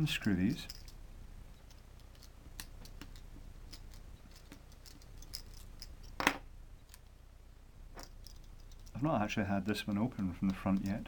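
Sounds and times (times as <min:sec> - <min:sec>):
screwdriver ticks and scrapes: 0:01.6 - 0:06.2, 0:09.9 - 0:11.0.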